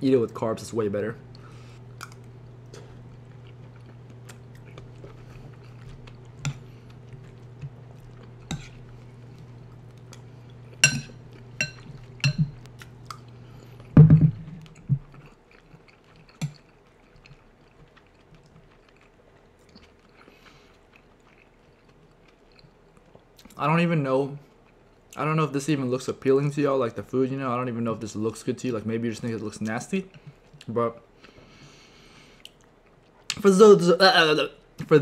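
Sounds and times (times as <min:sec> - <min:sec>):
low background hum: 0:00.0 - 0:35.0
chewing food: 0:01.3 - 0:23.6
thump: 0:14.0 - 0:14.4.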